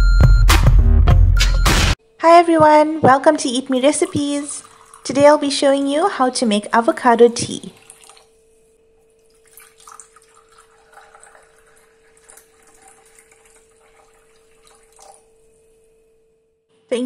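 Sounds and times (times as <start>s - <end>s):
faint steady hum: 2.0s - 17.0s
tea pouring into glass mug: 3.7s - 5.5s, 7.7s - 8.3s, 9.2s - 15.3s.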